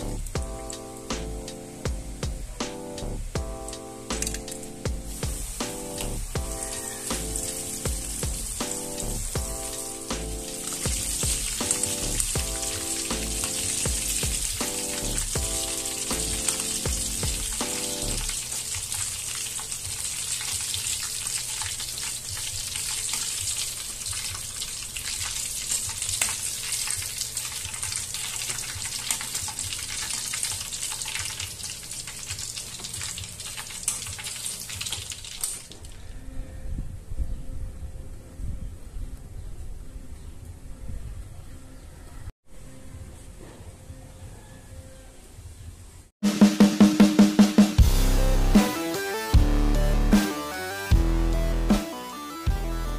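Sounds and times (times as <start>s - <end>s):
music: 0.0s - 18.5s, 46.2s - 52.9s
sharp clicks: 3.7s - 4.7s
chicken deep-frying in oil: 5.1s - 35.8s, 44.4s - 45.1s.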